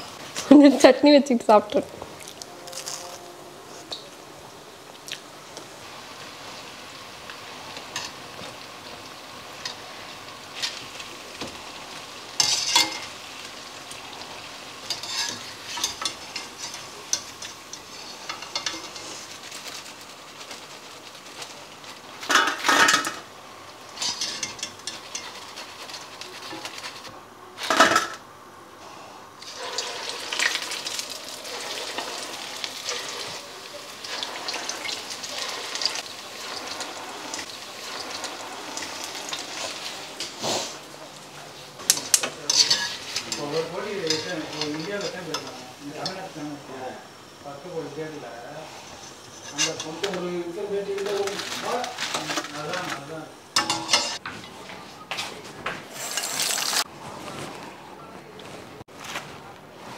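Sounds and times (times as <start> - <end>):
food sizzling in hot oil: 5.7 - 28.1, 29.4 - 54.2, 55.9 - 56.9
metal skimmer scraping a pan: 14.8 - 23.2, 24.0 - 28.2, 29.4 - 40.9, 41.8 - 46.4, 48.7 - 50.3, 51.0 - 54.2.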